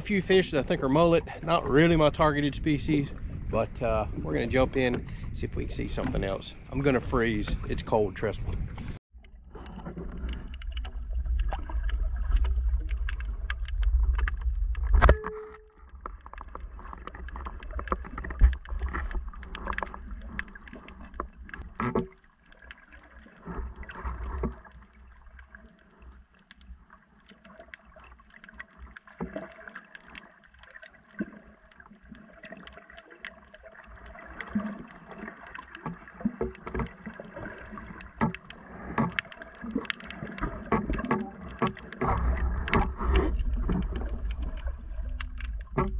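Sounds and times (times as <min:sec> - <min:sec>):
muffled underwater rumble: 0:00.0 - 0:22.0, 0:33.8 - 0:45.9
clicks and ticks in water: 0:04.8 - 0:45.9.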